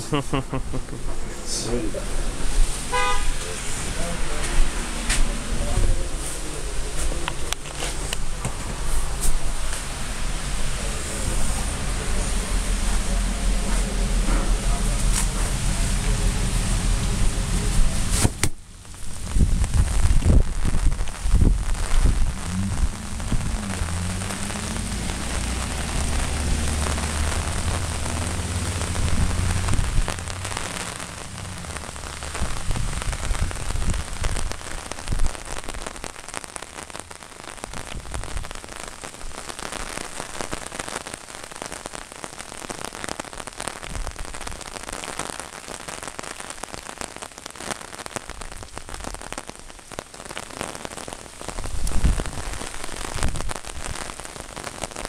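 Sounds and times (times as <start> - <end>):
heavy rain on umbrella: 0.0 - 55.0
low engine hum: 9.9 - 18.1, 21.4 - 34.0.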